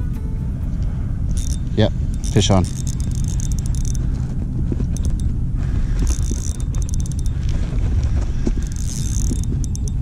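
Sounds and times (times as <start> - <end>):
wind on microphone: 0.0 - 10.0
fishing reel ticking: 1.3 - 4.2, 4.9 - 7.7, 8.3 - 10.0.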